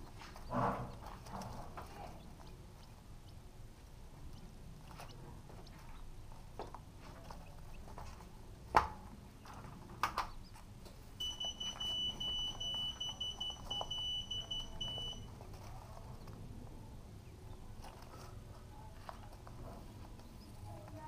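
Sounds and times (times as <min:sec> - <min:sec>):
high electronic beeps: 0:11.2 - 0:15.3.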